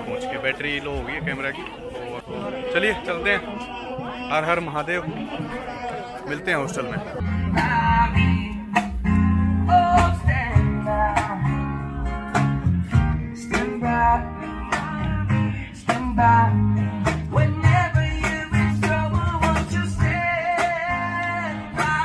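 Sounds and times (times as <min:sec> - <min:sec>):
guitar-led music with bass and beats: 0:07.2 - 0:22.0.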